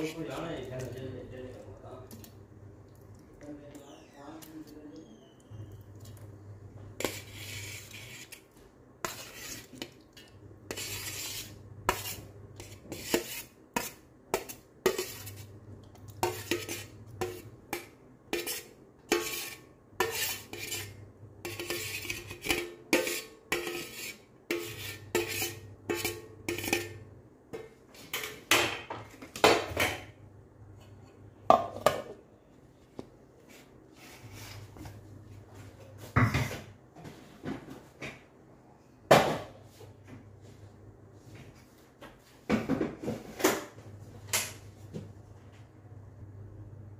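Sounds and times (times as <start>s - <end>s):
utensil scraping metal pan: 7.0s - 15.5s, 16.2s - 27.1s.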